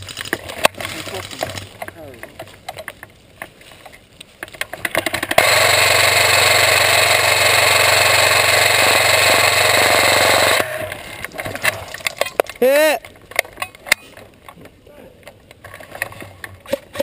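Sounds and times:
gun handling clicks and knocks: 0.0 - 5.4, 11.2 - 17.0
airsoft gun full-auto burst: 5.3 - 10.8.

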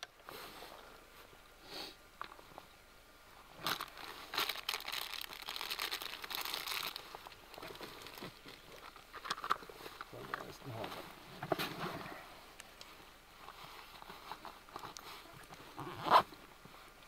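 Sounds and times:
packaging crinkling: 3.6 - 9.7.

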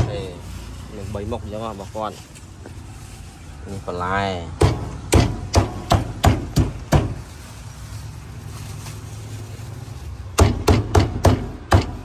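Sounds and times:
cleaver chopping on wooden block: 4.6 - 7.2, 10.4 - 12.0.

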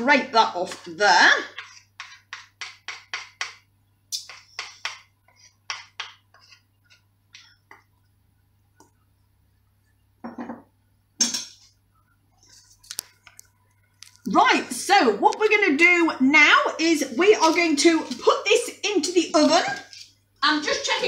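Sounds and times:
spoon scraping batter off spatula: 0.4 - 8.0, 19.3 - 20.8.

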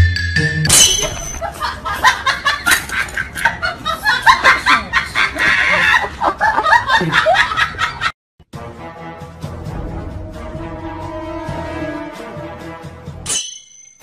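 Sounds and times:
people laughing: 1.4 - 8.2.

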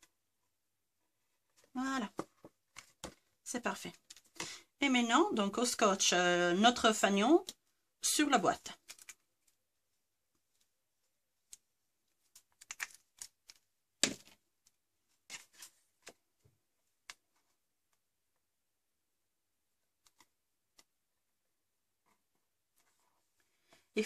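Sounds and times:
paper rustling: 8.7 - 9.6, 11.4 - 16.3.

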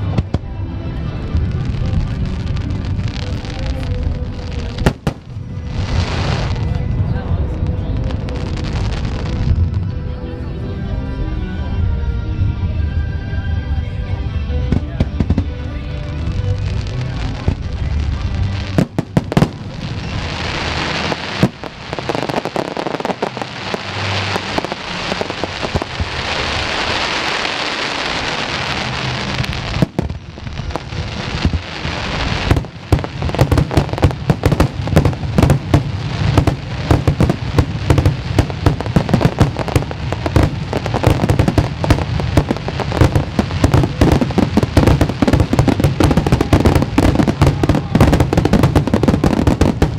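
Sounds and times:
crackling firework bursts: 1.2 - 6.8, 8.0 - 9.8, 16.3 - 49.9
rapid firework bangs: 31.3 - 49.9.

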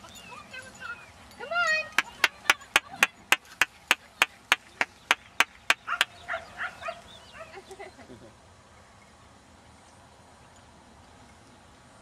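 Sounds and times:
sharp hand claps: 2.0 - 6.1.

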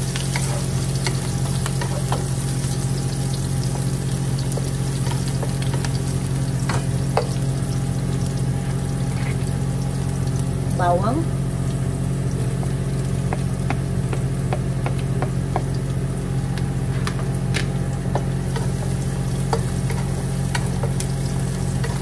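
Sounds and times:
onions sizzling in hot oil: 0.0 - 22.0
wooden spatula scraping wok: 9.0 - 9.5.

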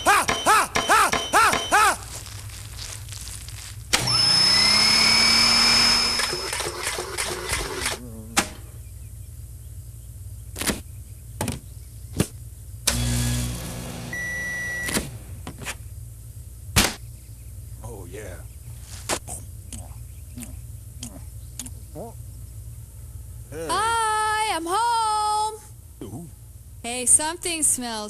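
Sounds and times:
microwave hum: 0.0 - 17.6
microwave electronic beep: 0.3 - 1.8, 14.1 - 15.1
motor whirring: 3.9 - 8.0, 12.9 - 14.3
sharp clicks: 3.9 - 8.6, 19.7 - 21.8.

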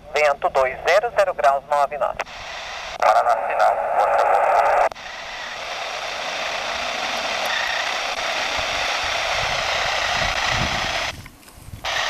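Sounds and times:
turboprop engine whine: 0.0 - 12.0
wind rumble on microphone: 8.6 - 11.9.

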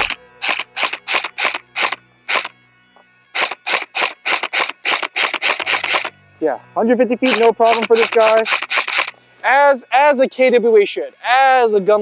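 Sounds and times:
airsoft rifle firing single shots: 0.0 - 2.5, 3.3 - 6.1, 7.3 - 9.1.

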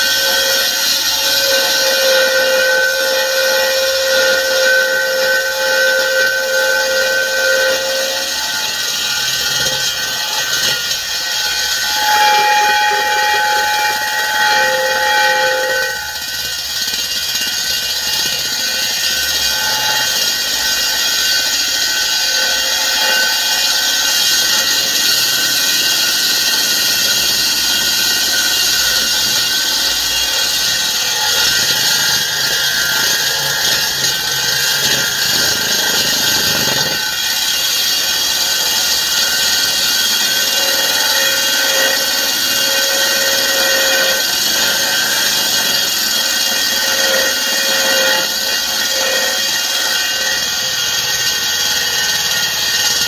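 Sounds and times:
core drill grinding into concrete: 0.0 - 53.0.

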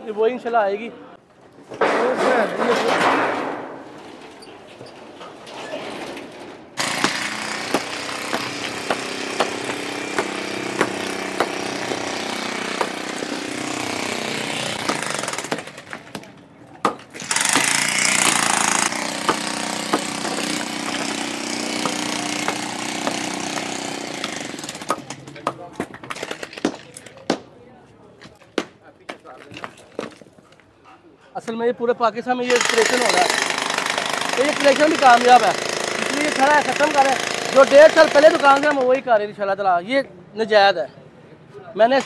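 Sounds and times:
electric demolition hammer breaking concrete: 6.8 - 16.2, 17.1 - 25.3.

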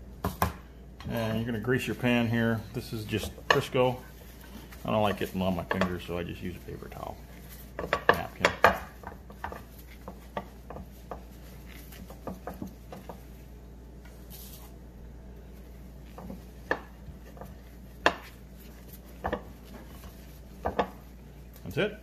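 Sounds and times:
paper towel rubbing glass dish: 3.0 - 13.5, 15.5 - 21.5.

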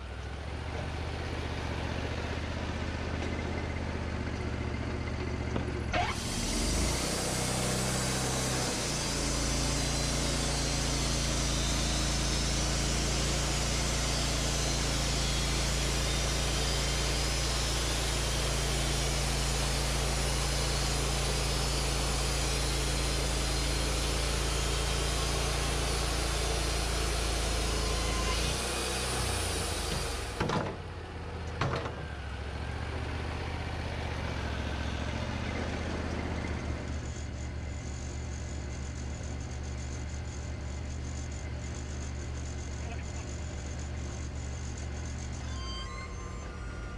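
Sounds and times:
sawmill engine running: 0.0 - 46.9
band blade hissing in wood: 6.0 - 30.4.

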